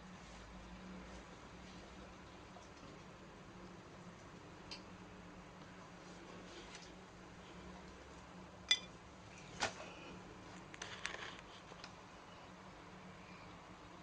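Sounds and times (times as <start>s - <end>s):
light metallic clink: 8.7s - 8.9s.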